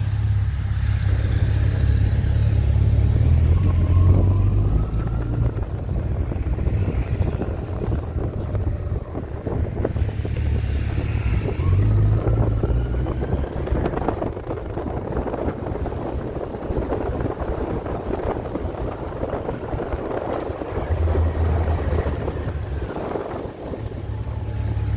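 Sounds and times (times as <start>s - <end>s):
motorcycle engine running: 0.0s - 3.6s
wind buffeting microphone: 0.0s - 24.9s.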